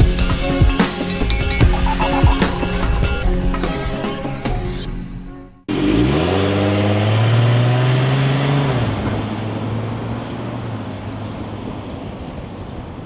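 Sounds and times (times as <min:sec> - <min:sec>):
van engine revving and pulling away: 0:05.7 - 0:13.0.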